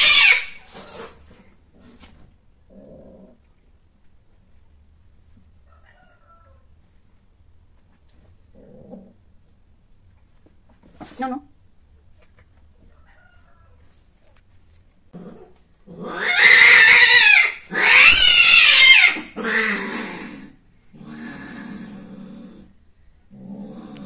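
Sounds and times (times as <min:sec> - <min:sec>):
cats yowling: 0:00.0 - 0:00.7, 0:16.0 - 0:20.3
cats growling moans: 0:00.0 - 0:03.6, 0:08.5 - 0:09.3, 0:15.1 - 0:24.0.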